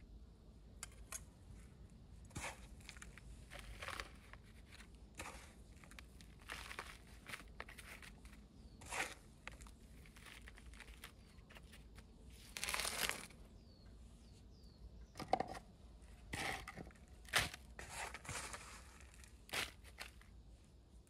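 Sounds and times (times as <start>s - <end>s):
material crinkling and rustling: 2.3s - 13.4s, 16.6s - 20.3s
tearing rustle: 2.3s - 13.4s, 16.4s - 20.3s.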